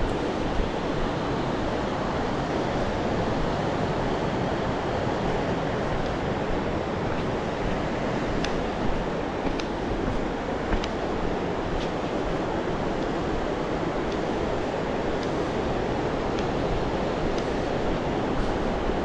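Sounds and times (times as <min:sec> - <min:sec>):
river white water rushing: 0:00.0 - 0:19.0.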